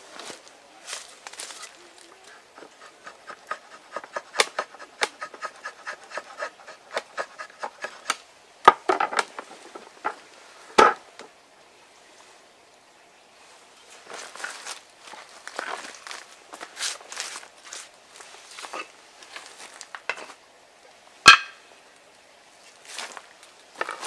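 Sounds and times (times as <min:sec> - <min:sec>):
drawknife shaving wood: 0:02.6 - 0:08.2
wooden knocks: 0:08.7 - 0:10.2, 0:10.8 - 0:11.0.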